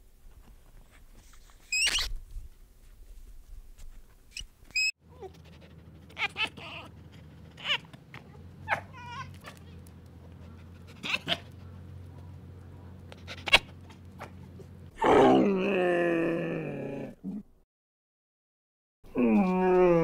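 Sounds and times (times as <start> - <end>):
monkey chirps: 1.7 - 2.1
macaque squealing: 6.1 - 7.9, 10.9 - 11.6
fox whining cries: 6.1 - 8.0.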